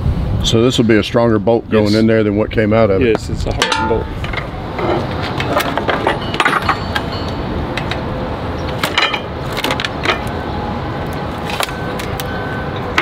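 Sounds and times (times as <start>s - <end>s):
steady low rumble: 0.0s - 13.0s
metal clinks and knocks: 3.6s - 8.1s, 8.7s - 10.4s.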